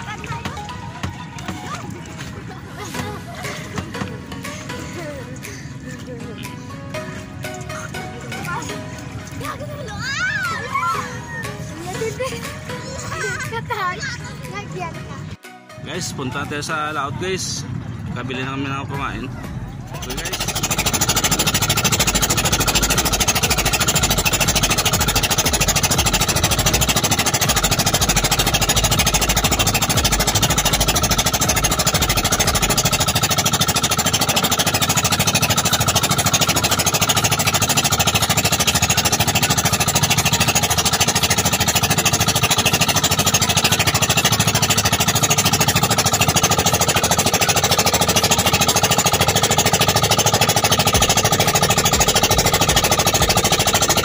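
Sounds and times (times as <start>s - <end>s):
boat engine running loudly: 0.0s - 54.0s
low rumble: 17.3s - 54.0s.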